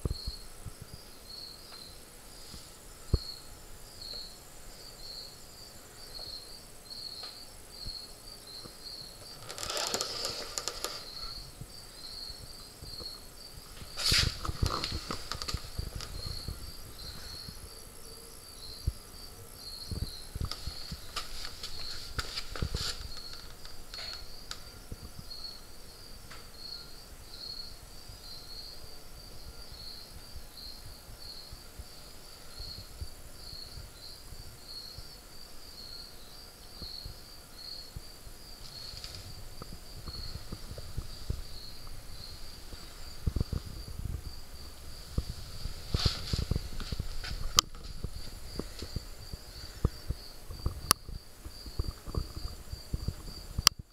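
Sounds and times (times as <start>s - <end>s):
crickets chirping: 0.0s - 53.9s
rustles and knocks: 9.2s - 11.4s, 13.7s - 17.6s, 20.4s - 24.6s, 45.0s - 53.3s.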